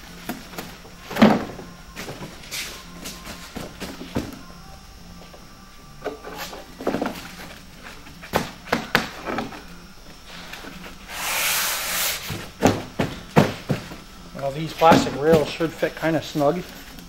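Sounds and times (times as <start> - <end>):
plastic and foam panels clattering: 14.8 - 15.6.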